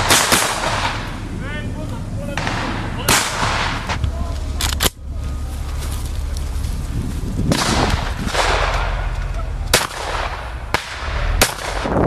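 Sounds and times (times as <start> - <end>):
rifle shots echoing: 0.0 - 1.2, 2.3 - 4.0, 7.5 - 12.0
steady low rumble: 0.0 - 12.0.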